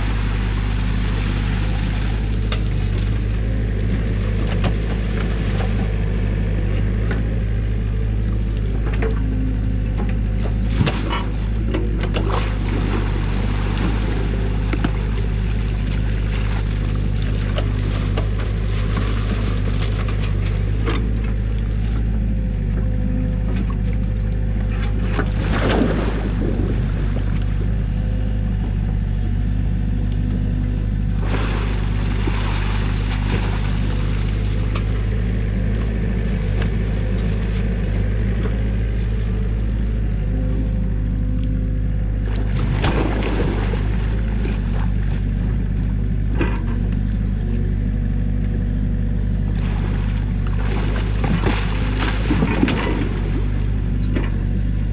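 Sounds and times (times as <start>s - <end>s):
water splashing: 0.0s - 3.3s, 10.6s - 20.8s, 25.0s - 27.7s, 31.0s - 35.1s, 42.2s - 45.4s, 49.4s - 54.6s
excavator diesel engine running: 0.0s - 54.9s.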